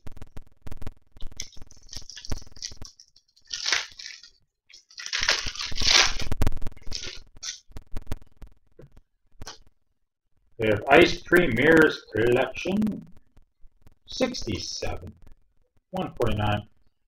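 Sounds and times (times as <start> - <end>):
wrapper crinkling and tearing: 1.2 - 7.7.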